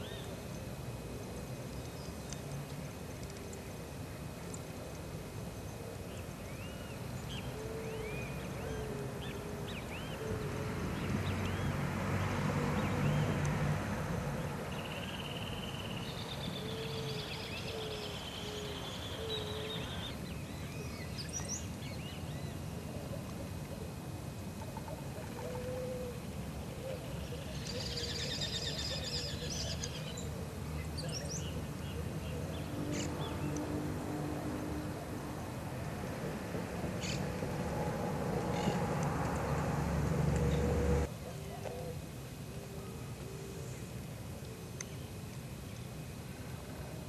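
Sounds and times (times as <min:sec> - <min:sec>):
vehicle passing: 0:10.5 - 0:14.8, 0:32.4 - 0:41.1
birds chirping: 0:14.7 - 0:22.7, 0:26.7 - 0:33.7, 0:37.0 - 0:37.4, 0:38.3 - 0:41.1.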